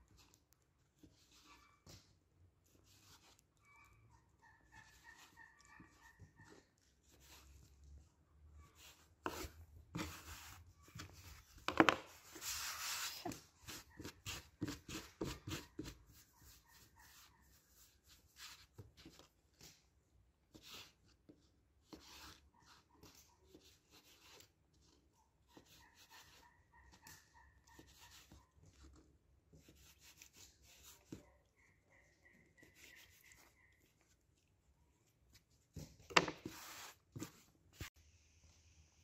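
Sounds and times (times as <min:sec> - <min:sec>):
hands rolling dough on board: 0:08.8 - 0:19.8, 0:35.2 - 0:38.0.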